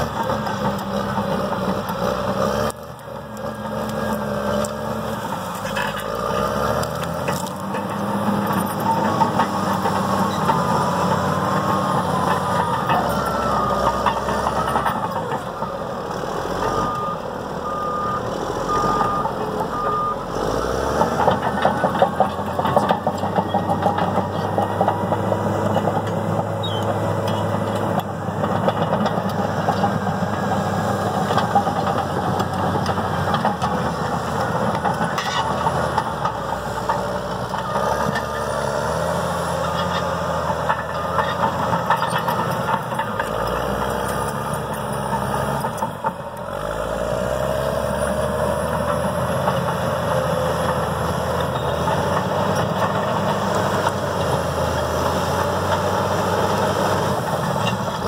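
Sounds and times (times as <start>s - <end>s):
bulldozer diesel engine: 0.0s - 58.0s.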